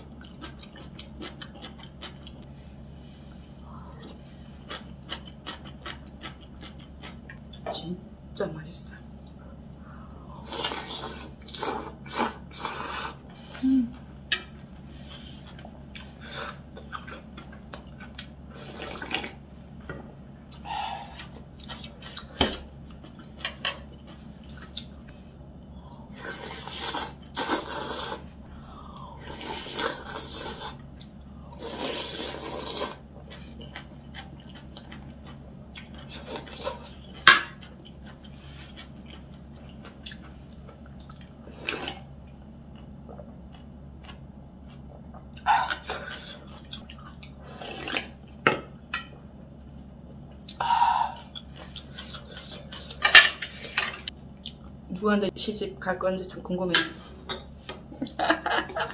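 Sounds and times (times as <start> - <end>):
person slurping soup: 26.1 - 28.3, 28.9 - 30.8, 31.5 - 33.0.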